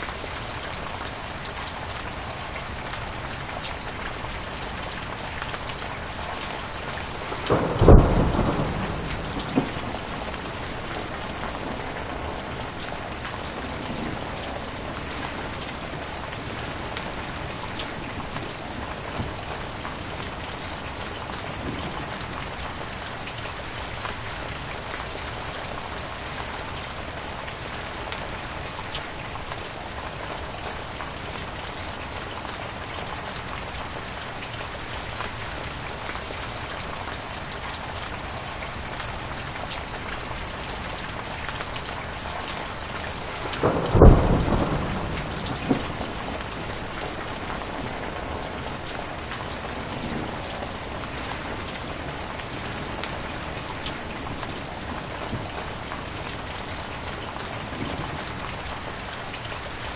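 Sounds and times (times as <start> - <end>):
heavy rain: 0.0 - 59.9
thunderclap rumbling: 6.2 - 22.6, 42.8 - 56.0.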